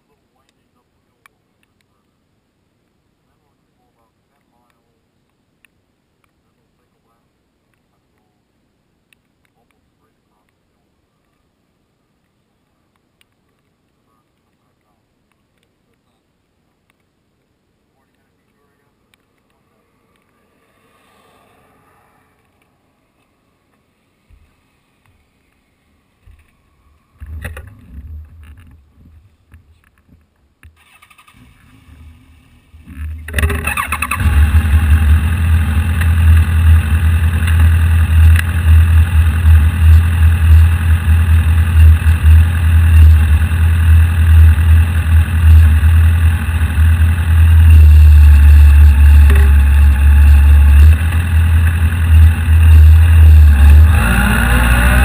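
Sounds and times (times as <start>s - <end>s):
vehicle engine starting and idling: 30.8s - 55.0s.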